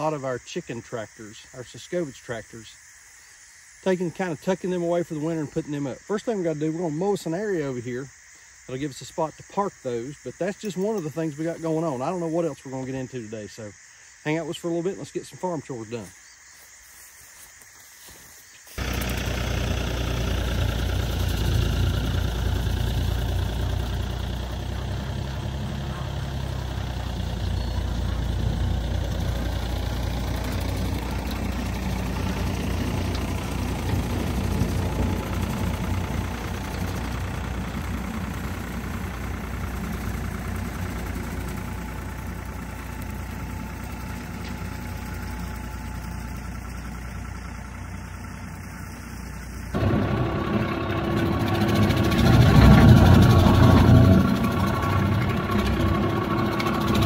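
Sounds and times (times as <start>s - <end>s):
tractor engine running: 0.0s - 13.7s, 14.3s - 57.0s
mower cutting grass: 17.3s - 57.0s.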